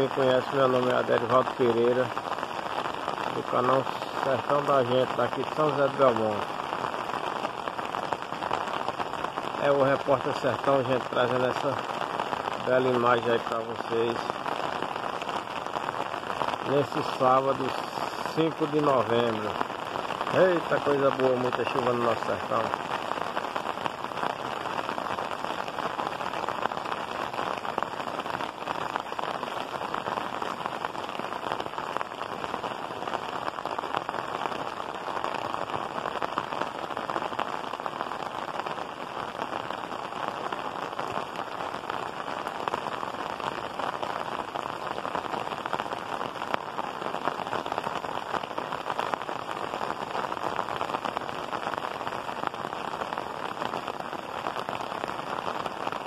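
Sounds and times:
heavy rain pouring: 0.0 - 56.0.

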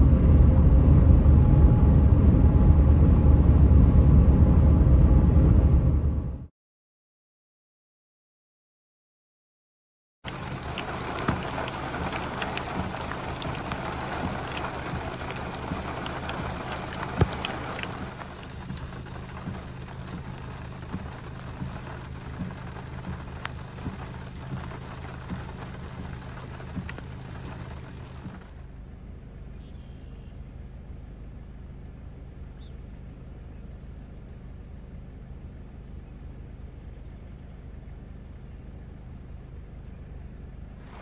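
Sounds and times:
steady low hum: 0.0 - 6.5, 10.3 - 41.0
rain falling: 10.3 - 28.7.

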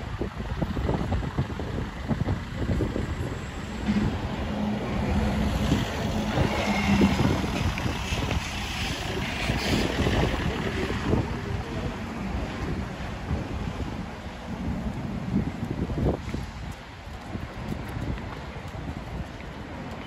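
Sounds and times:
low engine hum: 0.0 - 20.0
wind buffeting microphone: 0.0 - 20.0
passing traffic hiss: 3.2 - 12.7.

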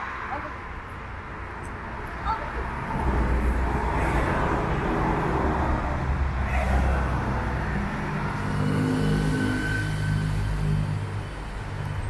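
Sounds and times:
street traffic: 0.0 - 12.0.

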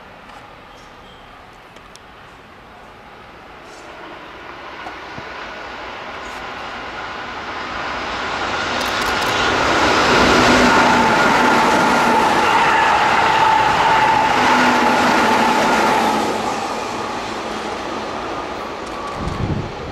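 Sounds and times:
train wheels on rail: 0.0 - 19.9
train motor whine: 8.7 - 14.5.

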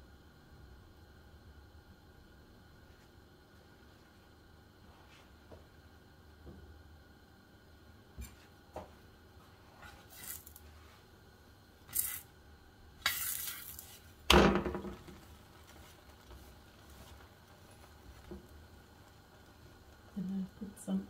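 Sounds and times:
metal spoon scraping a pan: 11.9 - 12.2.

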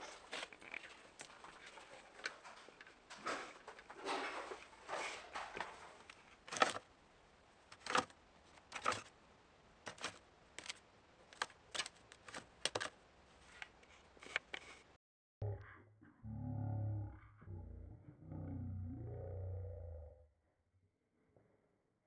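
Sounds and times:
index cards flicking: 9.9 - 12.9.

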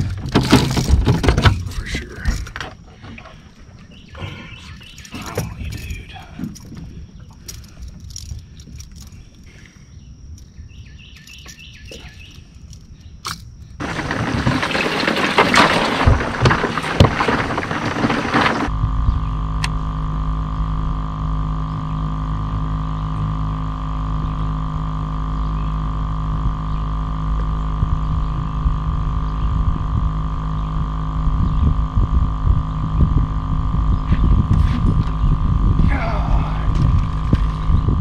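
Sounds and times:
electric trolling motor humming: 0.0 - 38.0
loud rushing rustling noise: 13.8 - 18.7.

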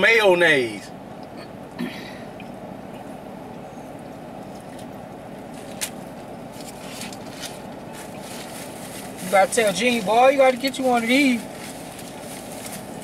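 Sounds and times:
car engine and ventilation hum: 0.0 - 13.0
faint clicks and rustles: 2.9 - 13.0.

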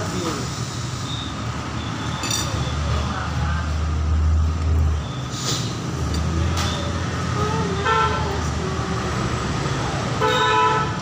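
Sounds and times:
passing vehicle engine rumble: 0.0 - 10.2.

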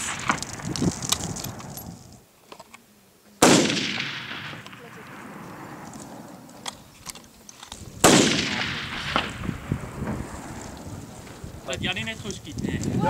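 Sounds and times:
rifle shot echoing: 0.0 - 1.6, 3.4 - 6.9, 8.0 - 10.5.

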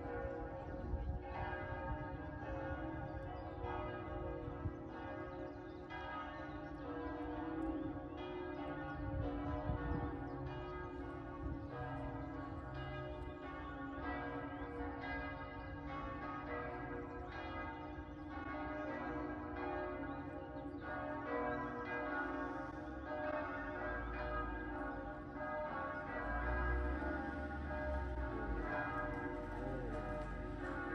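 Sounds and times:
church bells ringing: 0.0 - 30.9.

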